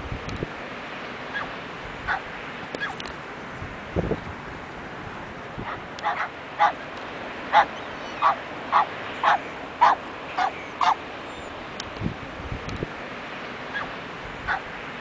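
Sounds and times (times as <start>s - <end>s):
dog barking: 5.6s - 6.8s, 7.5s - 11.0s, 14.5s - 14.7s.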